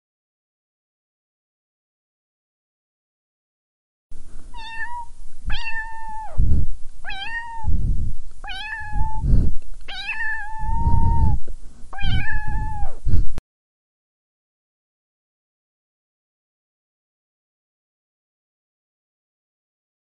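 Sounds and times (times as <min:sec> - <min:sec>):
low rough rumble: 0:04.1 - 0:13.4
cat meowing: 0:04.6 - 0:06.4, 0:07.0 - 0:07.7, 0:08.5 - 0:09.2, 0:09.9 - 0:11.4, 0:12.0 - 0:13.0.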